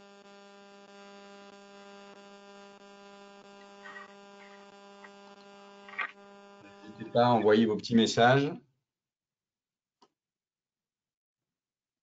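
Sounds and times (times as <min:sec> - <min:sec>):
faint soft noises: 0:03.6 - 0:05.2
faint electrical hum: 0:03.6 - 0:08.5.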